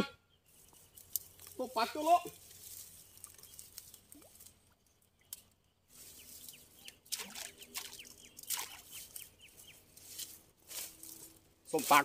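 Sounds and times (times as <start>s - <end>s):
water splash: 7.1s - 9.0s.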